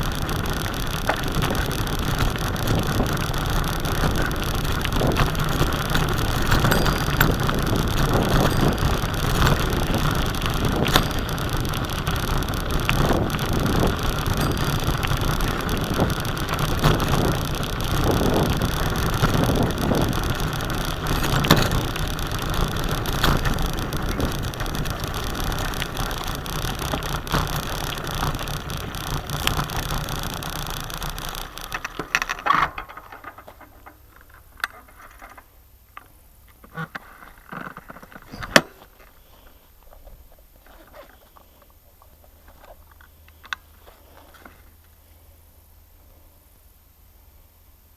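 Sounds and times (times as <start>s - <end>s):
bicycle knocks over bumps: 0.0s - 34.1s
bicycle rattling on dirt track: 0.0s - 35.7s, 36.5s - 44.8s.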